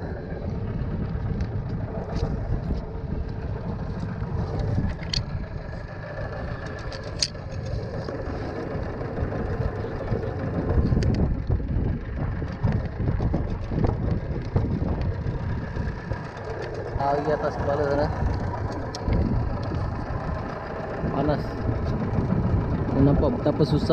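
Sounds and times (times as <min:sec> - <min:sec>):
outboard motor running: 0:00.0 - 0:23.9.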